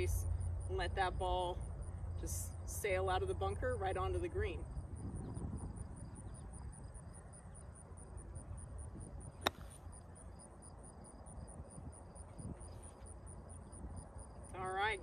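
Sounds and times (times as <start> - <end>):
insects chirping: 4.2 - 15.0
golf club striking sand: 9.4 - 9.9.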